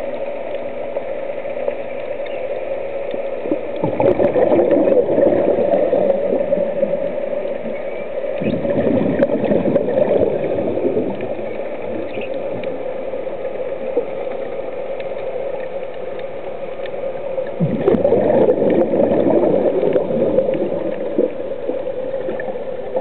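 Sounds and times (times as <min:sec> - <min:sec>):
steady hum: 0:00.0 - 0:23.0
regulator exhaust bubbles: 0:03.3 - 0:14.2, 0:17.4 - 0:23.0.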